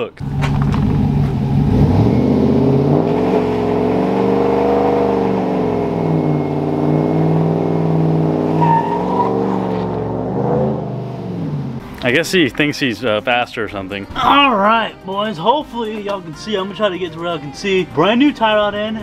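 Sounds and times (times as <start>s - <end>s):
car engine idling: 0.2s - 12.0s.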